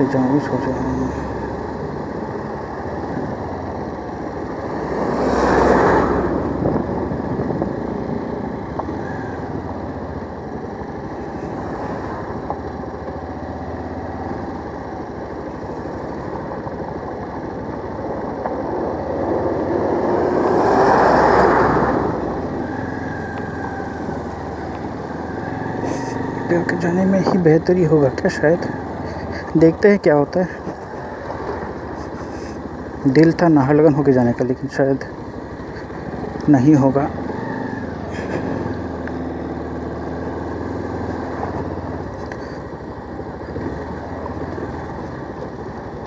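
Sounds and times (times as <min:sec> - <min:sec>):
motorcycle engine running: 0:00.0 - 0:46.0
wind noise: 0:04.9 - 0:08.5.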